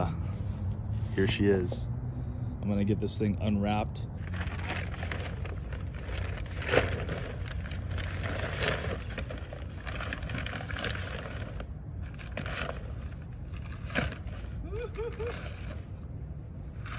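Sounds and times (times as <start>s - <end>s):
plastic shrink wrap crinkling: 4.2s - 13.0s.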